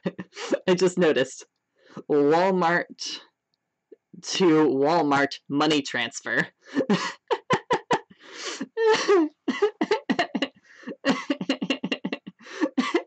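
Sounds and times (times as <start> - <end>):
woman laughing: 0.0 - 0.7, 6.7 - 13.0
breathy sound: 12.4 - 13.0.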